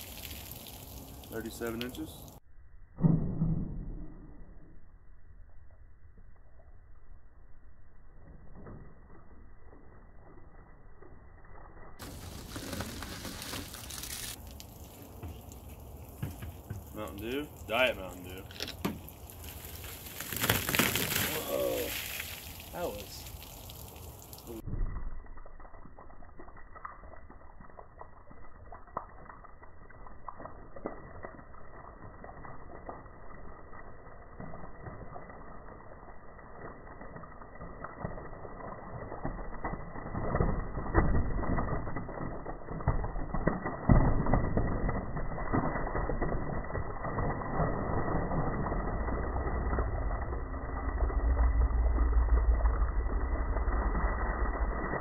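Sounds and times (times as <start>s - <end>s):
deep drawn-out rumble: 46.9s - 55.0s.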